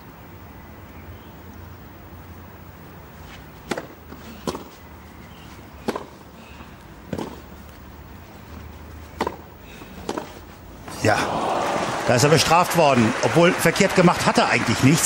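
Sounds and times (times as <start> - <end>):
tennis ball hit by racket: 3.6 - 4.8, 5.8 - 6.2, 7.1 - 7.5, 9.1 - 11.0.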